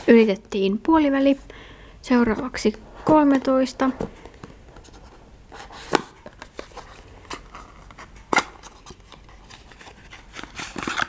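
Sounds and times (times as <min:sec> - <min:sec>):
cardboard rustling: 0:02.3 - 0:11.0.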